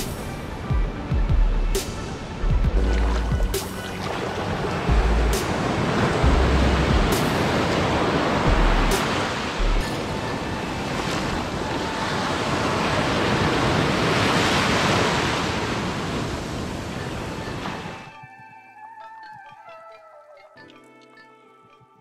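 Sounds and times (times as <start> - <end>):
surf washing on beach: 3.8 - 18.2.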